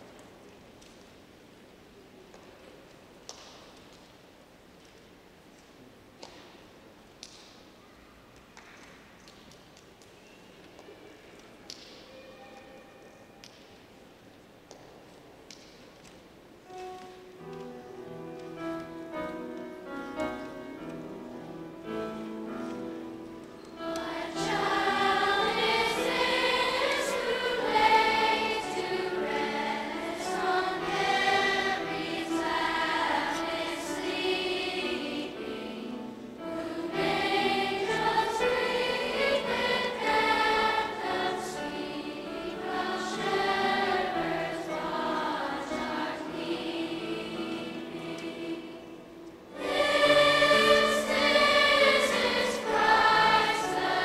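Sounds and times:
children's choir singing: 0:16.7 - 0:54.0.

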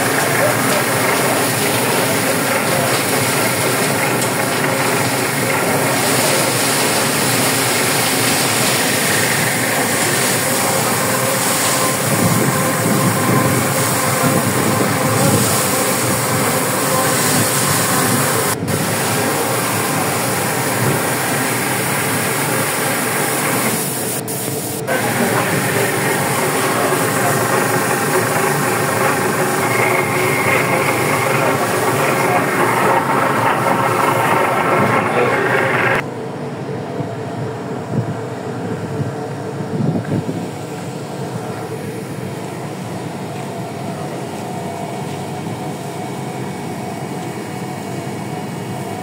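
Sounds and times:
hissing rush: 0:00.0 - 0:36.0
boat engines and deck machinery: 0:00.0 - 0:49.0.

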